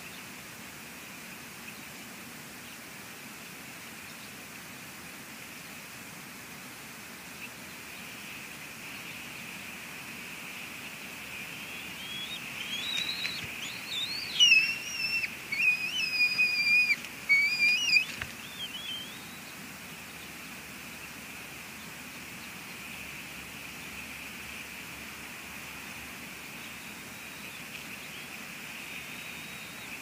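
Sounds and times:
steady high hiss: 0.0 - 30.0
eagles whistling calls: 11.3 - 19.4.

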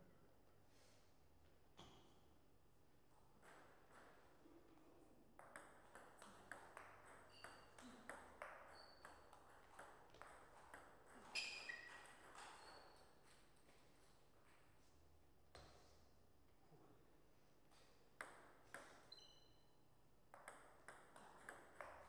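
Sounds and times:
ping pong ball bouncing on table: 3.4 - 4.2, 5.4 - 12.8, 18.2 - 19.1, 20.3 - 22.0
ping pong ball hitting bats: 3.4 - 4.3, 5.4 - 13.0, 18.2 - 19.1, 20.3 - 22.0.

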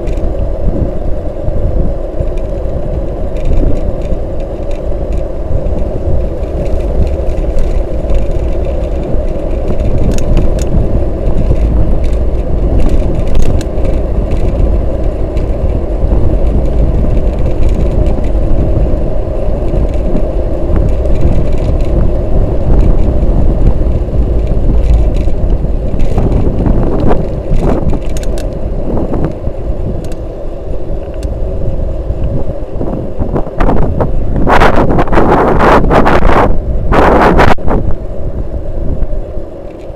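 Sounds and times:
small clicks and rattles: 0.0 - 0.5, 2.1 - 30.3, 31.0 - 31.4, 39.6 - 39.9
tyre rumble on asphalt: 0.0 - 38.0
wind buffeting microphone: 0.0 - 39.9.

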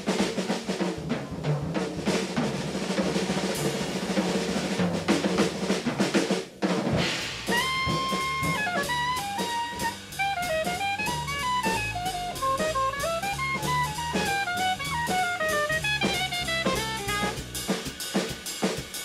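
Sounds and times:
bass: 0.0 - 19.0
drum kit fills: 0.0 - 19.0
saxophone playing: 7.5 - 17.6.

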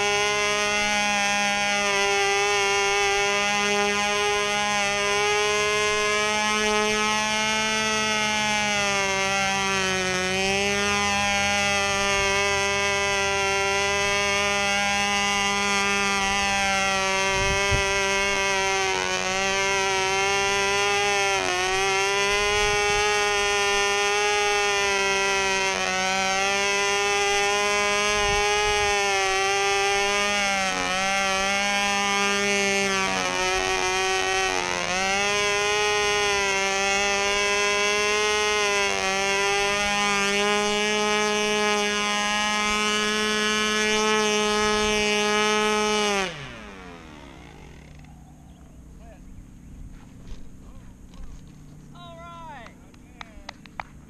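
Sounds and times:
model plane engine buzzing: 0.0 - 54.0.

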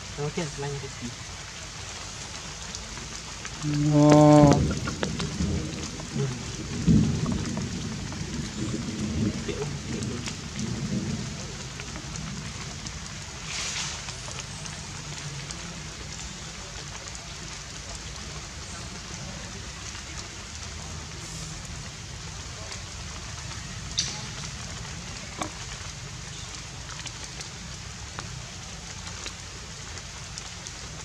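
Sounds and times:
light rain on leaves: 0.0 - 31.0
low rumbling: 3.6 - 13.6.

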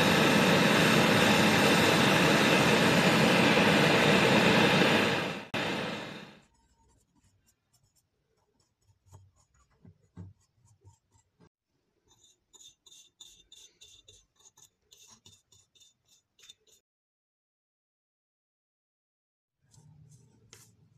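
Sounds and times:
loud running noise: 0.0 - 6.4
stiff brush scrubbing metal: 12.1 - 16.8.

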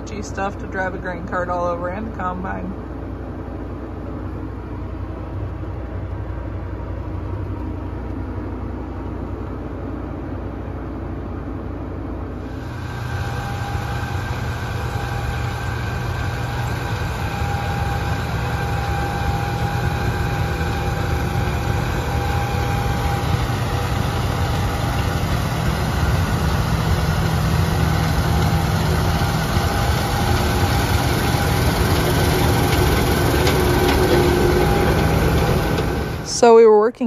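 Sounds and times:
combine harvester engine droning: 11.8 - 36.9.

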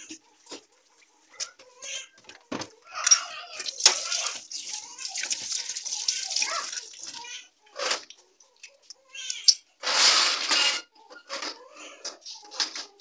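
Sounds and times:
tap water running into sink: 3.6 - 7.2
knocks and scrapes: 9.3 - 13.0.

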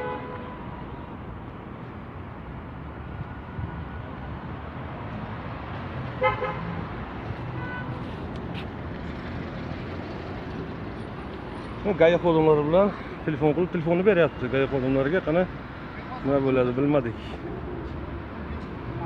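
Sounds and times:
street traffic rumble: 0.0 - 19.0
vehicle horn toot: 6.2 - 6.7, 7.6 - 8.0.

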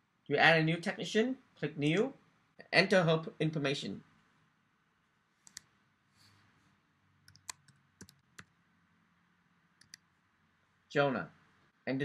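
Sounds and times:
keyboard typing clicks: 7.3 - 8.5, 9.8 - 10.0.

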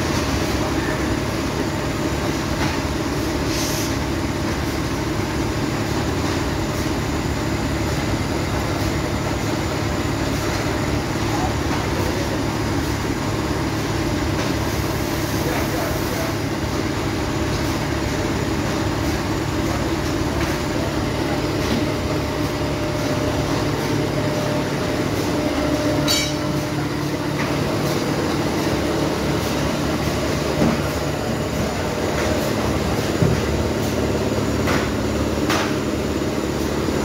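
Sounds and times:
factory machinery humming: 0.0 - 37.0.

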